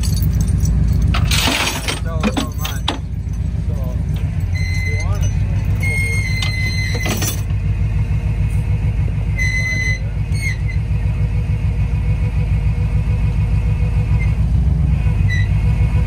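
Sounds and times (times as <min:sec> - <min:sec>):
truck engine idling: 0:00.0 - 0:16.0
high-pitched squeaks: 0:04.4 - 0:07.4, 0:09.3 - 0:10.8.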